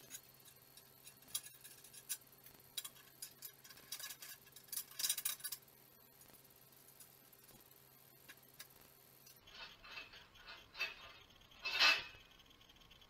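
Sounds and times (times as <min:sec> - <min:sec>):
metallic clicks and clinks: 0:00.0 - 0:05.7.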